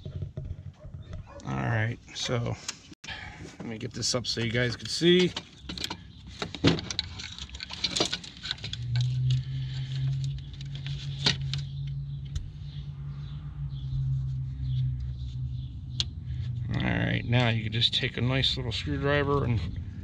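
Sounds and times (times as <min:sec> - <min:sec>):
wiring harness rustling: 0:04.4 - 0:11.9.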